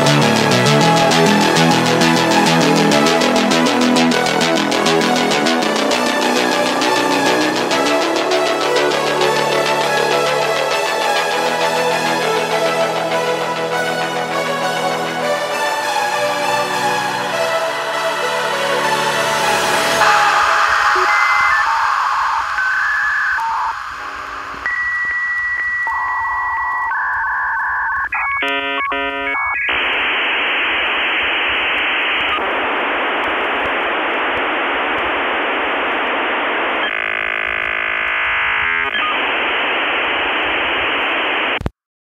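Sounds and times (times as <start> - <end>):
modem beeping tones: 20.0 - 29.8
dialling tones: 20.0 - 41.7
modem data hiss: 20.0 - 41.7.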